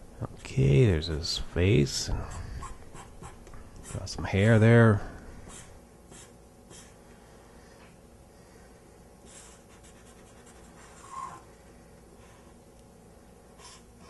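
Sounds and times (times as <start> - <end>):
marker scratching on paper: 2.6 - 4.1, 5.5 - 7.0, 9.3 - 11.4
marker squeak: 10.8 - 11.4.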